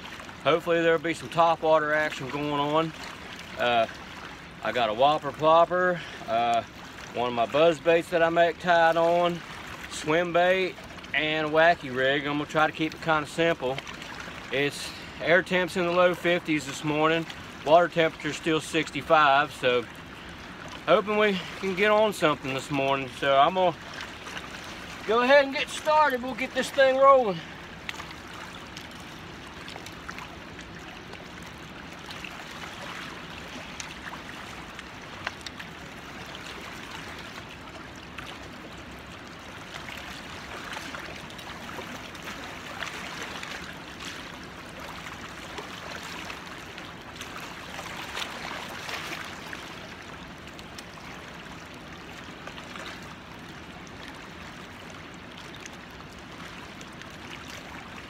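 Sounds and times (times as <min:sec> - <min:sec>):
river water lapping on rocks: 0:00.0 - 0:58.0.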